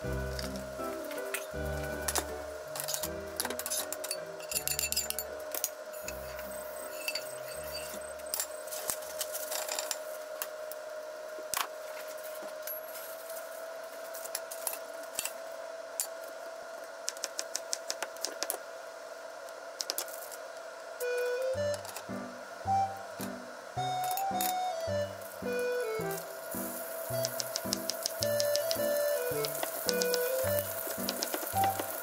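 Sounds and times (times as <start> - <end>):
steady hum: 0.0 - 12.6, 14.8 - 32.0
metal utensils clinking on pan: 2.8 - 5.3
knife tapping cutting board: 27.2 - 30.2.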